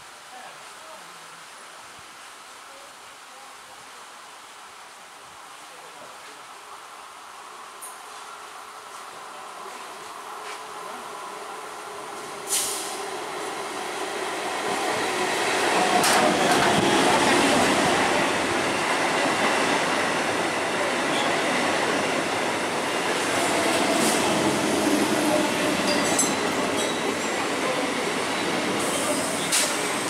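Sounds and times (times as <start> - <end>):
train running past: 7.4 - 30.0.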